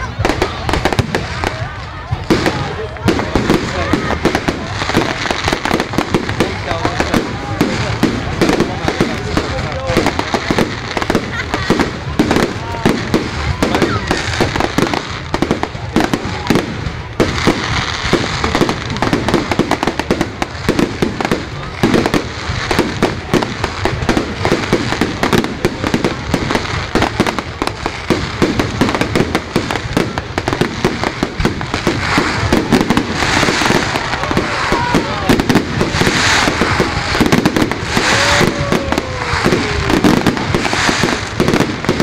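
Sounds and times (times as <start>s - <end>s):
fireworks bangs and crackles: 0.0s - 42.0s.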